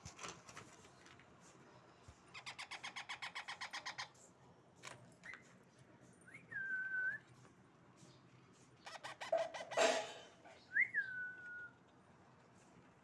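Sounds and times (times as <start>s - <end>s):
parakeets chattering: 2.3s - 4.2s, 8.8s - 10.0s.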